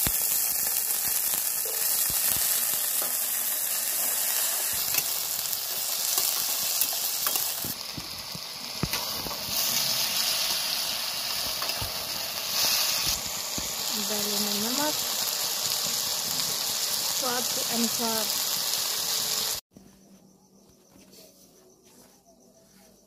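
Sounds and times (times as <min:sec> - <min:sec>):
potatoes sizzling in hot oil: 0:00.0 - 0:19.6.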